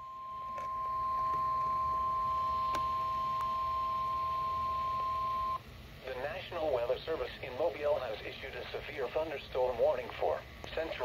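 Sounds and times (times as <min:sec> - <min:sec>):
faint lower tone: 0:00.0 - 0:05.6
weather radio warning alarm tone: 0:00.0 - 0:05.6.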